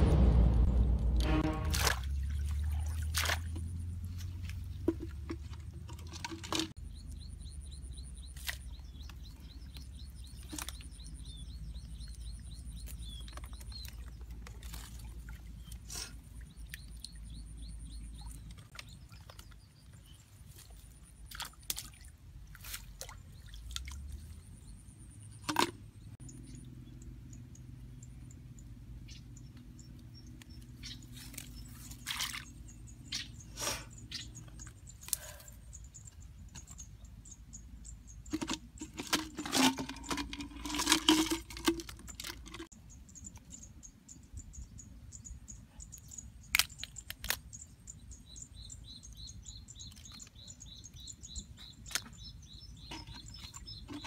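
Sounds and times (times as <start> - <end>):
low rumble: 0.0 - 3.1.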